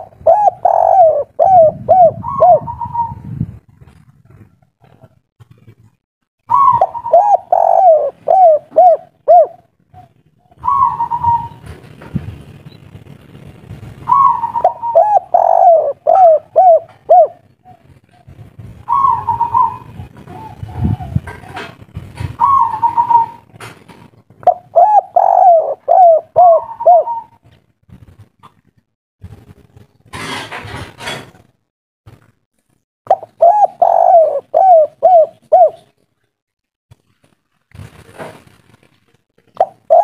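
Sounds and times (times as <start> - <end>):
dove cooing: 0.0 - 3.3, 6.5 - 11.8, 14.1 - 23.5, 24.4 - 27.5, 33.1 - 36.0, 39.5 - 40.0.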